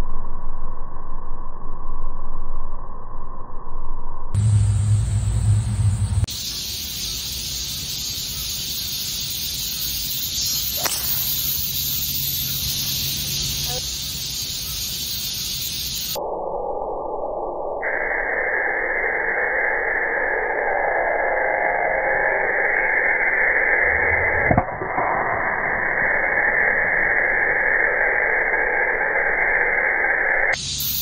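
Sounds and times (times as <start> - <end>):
muffled hiss: 4.4 - 16.2, 30.6 - 31.0
golf club striking ball: 10.8 - 11.8.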